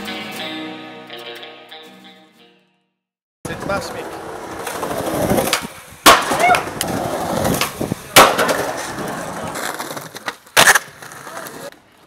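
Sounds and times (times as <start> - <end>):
skateboard wheels rolling: 3.5 - 12.0
skateboard impacts on concrete: 3.8 - 12.0.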